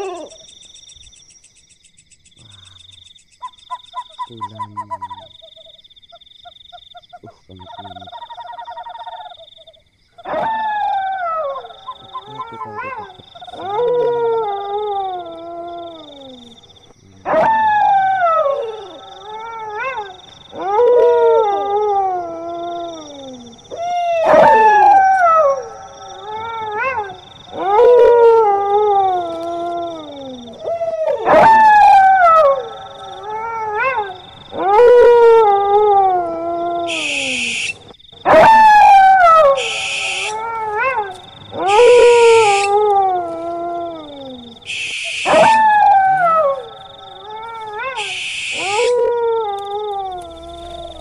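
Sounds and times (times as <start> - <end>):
dog howling: 0.0 - 0.4, 10.3 - 16.6, 17.2 - 37.5, 38.2 - 44.6, 45.2 - 51.0.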